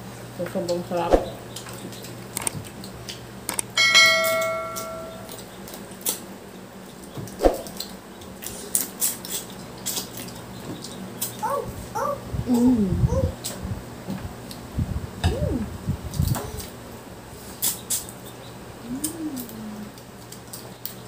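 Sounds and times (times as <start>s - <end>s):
shells cracking and clicking: 1.5s - 6.2s
bell-like ring: 3.8s - 5.4s.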